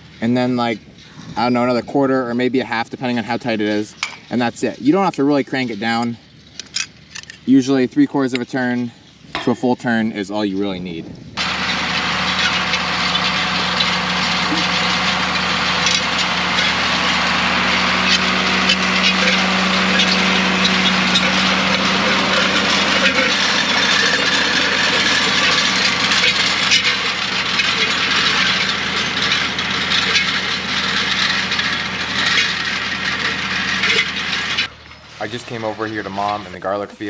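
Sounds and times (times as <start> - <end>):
tractor engine running under load: 11.3 - 37.0.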